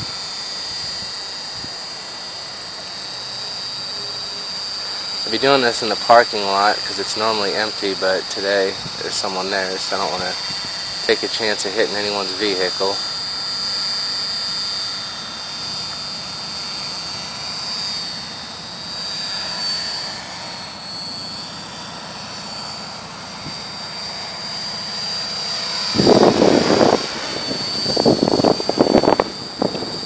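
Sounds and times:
wind noise: 0.0s - 0.2s, 0.8s - 1.8s, 8.7s - 9.0s, 25.8s - 30.0s
rc helicopter motor whine: 0.0s - 30.0s.

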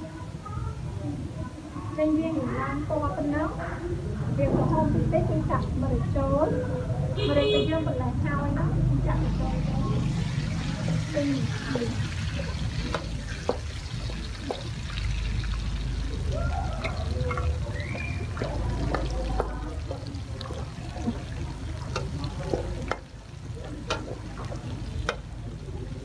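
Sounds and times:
food frying: 8.9s - 26.0s
ladle clicking on pan: 12.0s - 15.8s, 16.8s - 25.5s.

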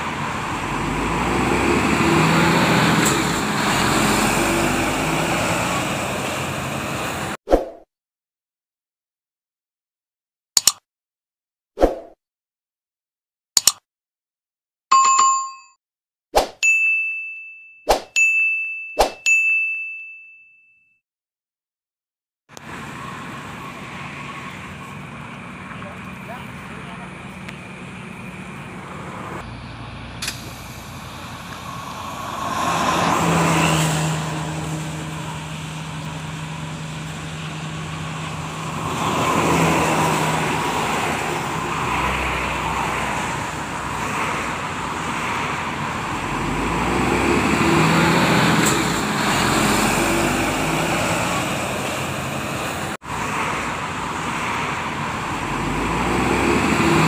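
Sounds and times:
large vehicle engine hum: 0.0s - 7.4s, 22.5s - 57.0s
road traffic passing: 0.0s - 7.4s, 22.5s - 57.0s.

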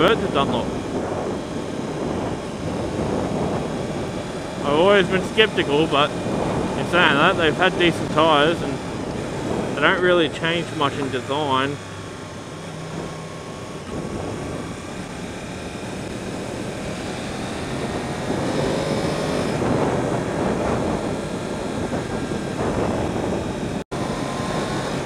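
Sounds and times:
motorcycle engine running: 0.0s - 25.0s
wind noise on microphone: 0.0s - 25.0s.

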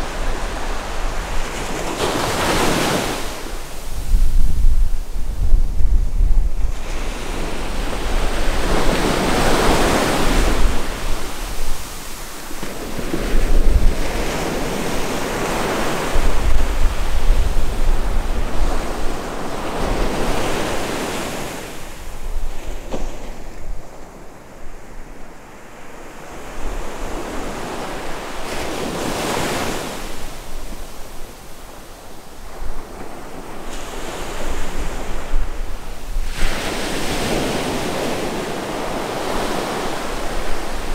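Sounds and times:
surf breaking on beach: 0.0s - 23.6s
wind buffeting microphone: 0.0s - 25.1s, 26.3s - 40.9s.

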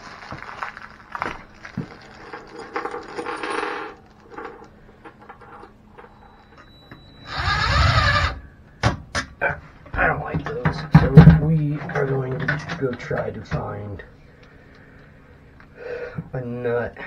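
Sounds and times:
cordless drill running: 7.2s - 8.4s.

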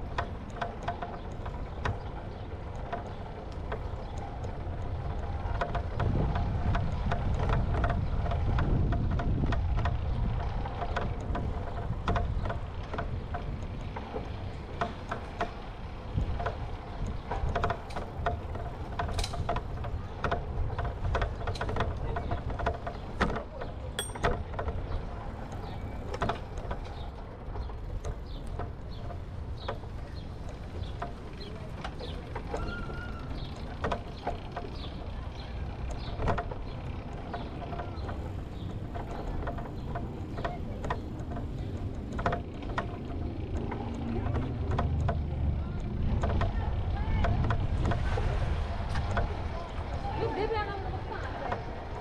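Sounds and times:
bicycle clicks and rattles: 0.0s - 52.0s
wind rumble on microphone: 1.2s - 23.4s, 34.4s - 52.0s.

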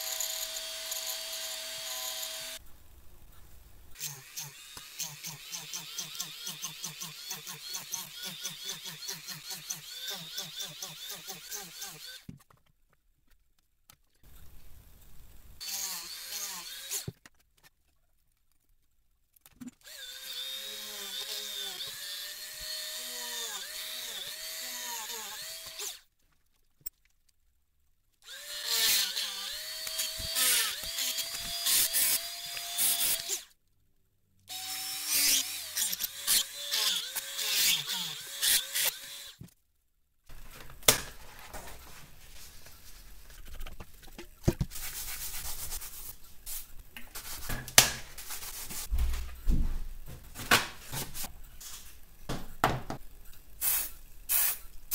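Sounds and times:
rotary tool drilling whine: 0.0s - 2.6s, 4.0s - 12.2s, 15.6s - 17.1s, 19.8s - 26.0s, 28.3s - 33.5s, 34.5s - 39.4s
cloth rubbing and scrubbing: 44.7s - 46.2s.

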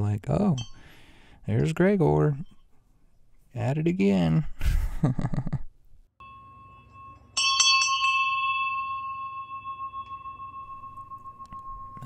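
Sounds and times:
small bell ringing: 0.5s - 1.2s, 6.2s - 12.0s.

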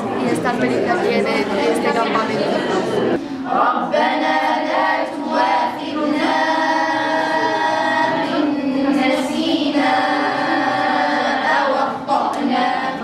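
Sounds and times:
girls and woman chanting in unison: 3.4s - 13.0s.

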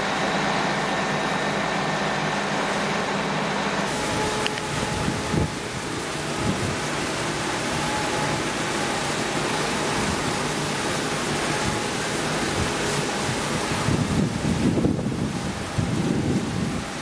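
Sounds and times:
water spraying from hose nozzle: 3.8s - 17.0s
wind rumble on microphone: 3.9s - 8.7s, 9.9s - 17.0s.

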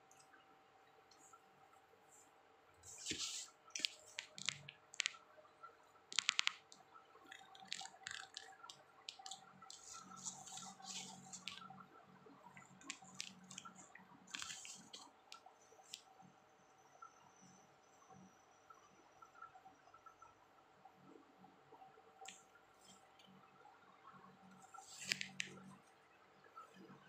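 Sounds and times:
crab shell cracking: 7.3s - 9.4s.

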